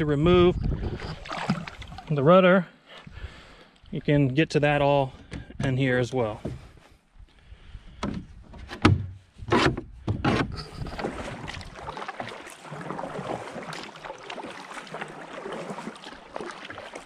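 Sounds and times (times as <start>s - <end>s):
paddle dipping and splashing: 0.8s - 4.4s, 9.1s - 17.0s
steady watery wash: 0.8s - 6.6s, 10.6s - 17.0s.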